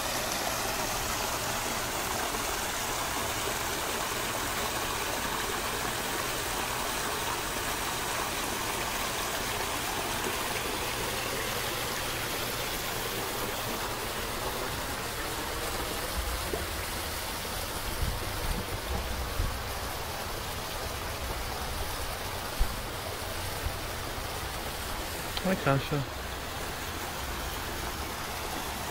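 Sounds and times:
running water in a pond: 0.0 - 28.9
low bumps: 17.8 - 20.0.

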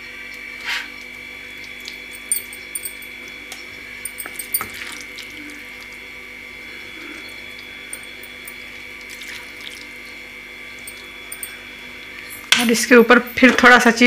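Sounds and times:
high-pitched hum: 2.1 - 3.2, 6.6 - 8.8, 10.7 - 14.0.

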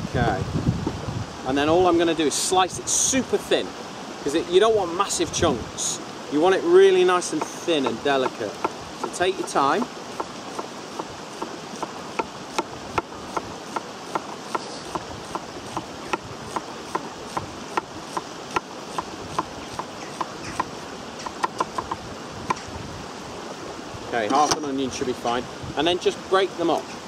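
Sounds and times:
knife tapping on wooden board: 7.4 - 22.6.

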